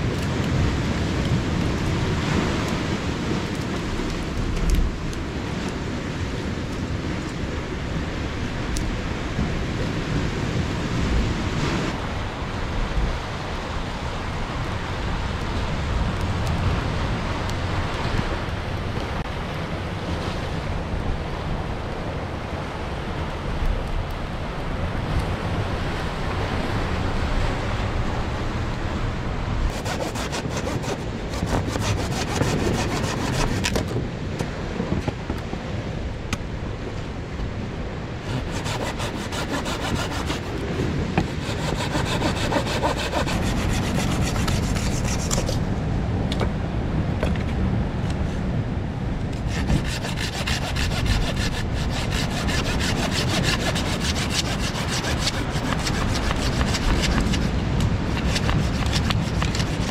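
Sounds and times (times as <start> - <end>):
hand saw cutting wood: 29.7 - 33.9, 38.2 - 40.6, 41.2 - 45.6, 49.4 - 57.5, 58.1 - 59.9.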